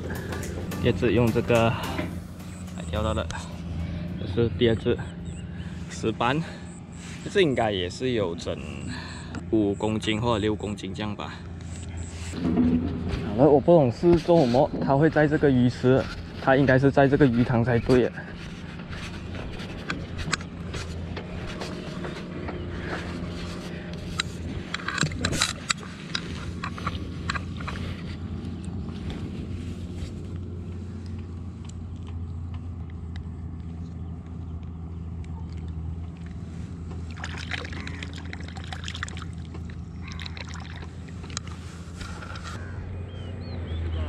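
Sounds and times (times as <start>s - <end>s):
water sloshing: 18.3s - 28.4s, 36.1s - 42.6s.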